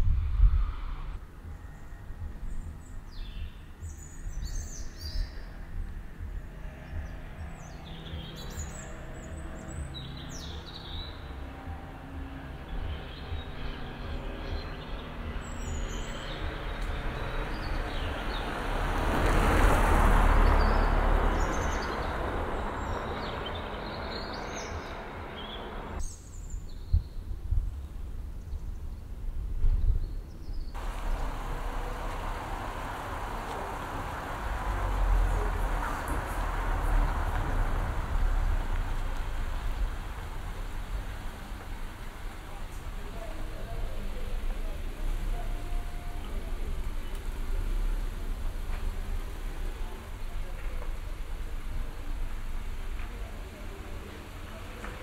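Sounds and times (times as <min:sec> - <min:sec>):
low traffic rumble: 0:00.0 - 0:55.0
birds chirping: 0:01.4 - 0:27.0, 0:30.1 - 0:55.0
vehicle passing: 0:14.6 - 0:26.0, 0:30.8 - 0:55.0.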